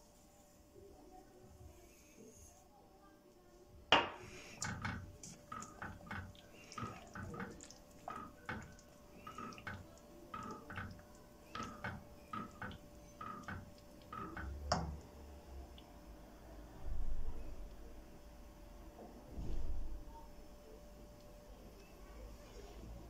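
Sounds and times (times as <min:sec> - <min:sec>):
wooden spoon scraping a pot: 0:04.3 - 0:14.7
wet sloshing: 0:04.5 - 0:14.7.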